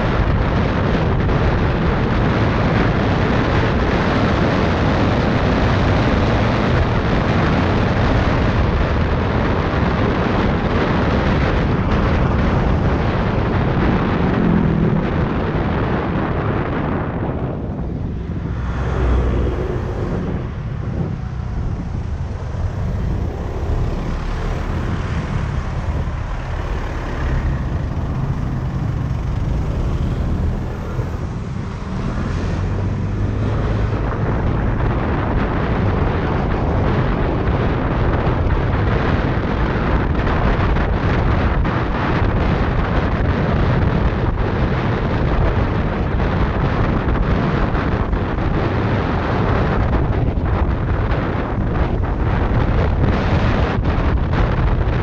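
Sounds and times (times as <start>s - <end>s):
tyres on the road: 0.0s - 55.0s
wind buffeting microphone: 0.0s - 55.0s
scooter engine: 17.6s - 33.2s.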